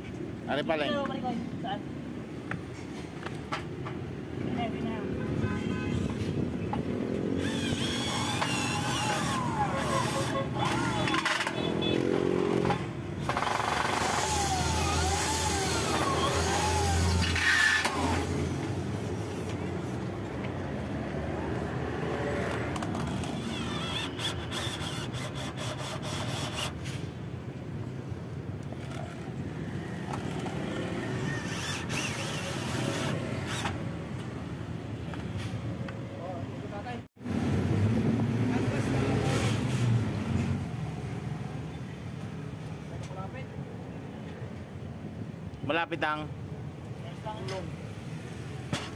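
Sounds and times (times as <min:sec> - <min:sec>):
cordless drill motor whine: 0:07.4 - 0:11.2, 0:13.9 - 0:18.3.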